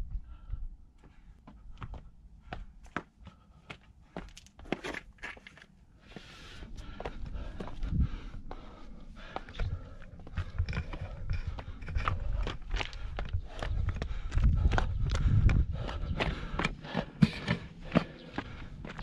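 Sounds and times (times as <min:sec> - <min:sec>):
footsteps on stones: 0:01.8 - 0:19.0
heavy footstep thumps: 0:15.5 - 0:18.1.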